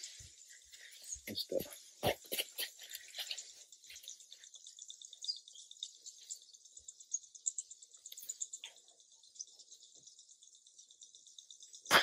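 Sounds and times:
high-pitched wildlife chirping: 0:02.3 - 0:10.2.

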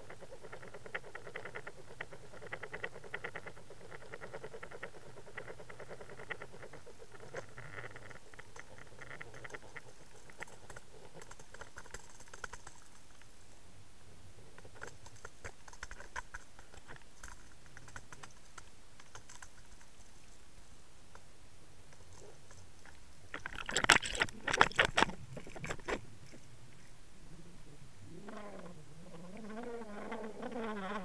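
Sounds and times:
underwater clicking and crackling: 0:00.0 - 0:13.3, 0:14.6 - 0:20.4, 0:21.9 - 0:27.0.

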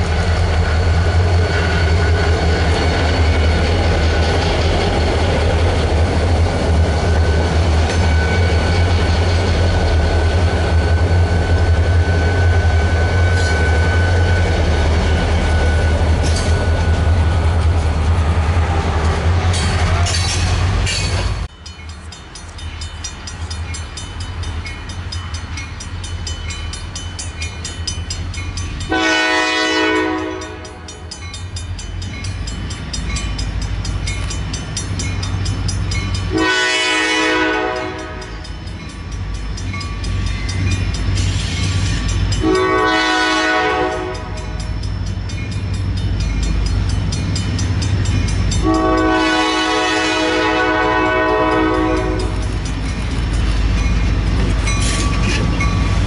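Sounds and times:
locomotive air horn blasts: 0:28.9 - 0:30.9, 0:36.3 - 0:38.3, 0:42.4 - 0:44.5, 0:48.6 - 0:52.4.

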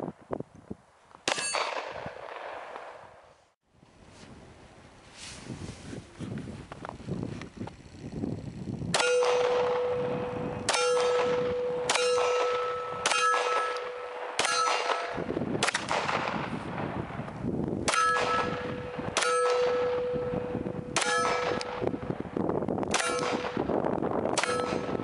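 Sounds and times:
pistol shots: 0:01.2 - 0:03.0, 0:08.9 - 0:16.5, 0:17.8 - 0:20.2, 0:21.0 - 0:21.9, 0:22.9 - 0:23.7
steel target clanging: 0:09.0 - 0:15.2, 0:17.9 - 0:21.9, 0:24.4 - 0:25.0.

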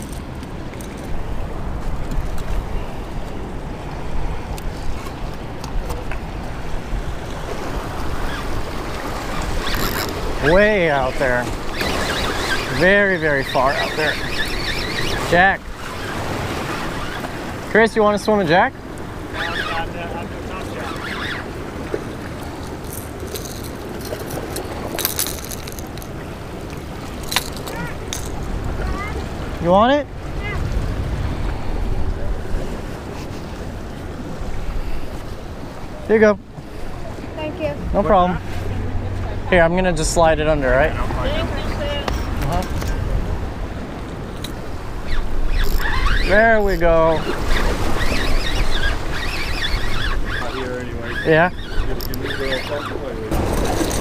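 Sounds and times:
surf washing on rocks: 0:00.0 - 0:54.0
wind: 0:00.0 - 0:54.0
lure and hooks clicking: 0:09.6 - 0:10.3, 0:22.6 - 0:28.4, 0:45.6 - 0:46.9
wind buffeting microphone: 0:18.8 - 0:36.1.

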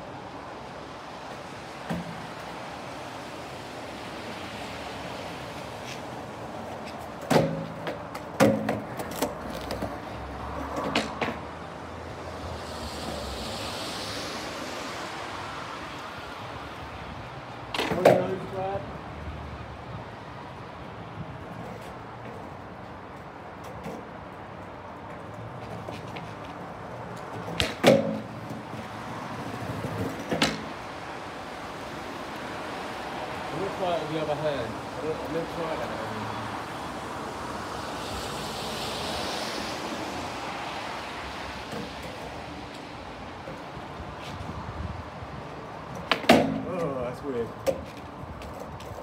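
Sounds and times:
skateboard wheels rumbling on paving: 0:00.8 - 0:16.7, 0:23.7 - 0:35.6
skateboard pop: 0:07.2 - 0:09.9, 0:27.5 - 0:28.3, 0:46.0 - 0:46.7
skateboard landing clack: 0:07.2 - 0:10.0, 0:10.8 - 0:11.4, 0:27.4 - 0:28.6, 0:29.8 - 0:30.7, 0:46.0 - 0:46.7.

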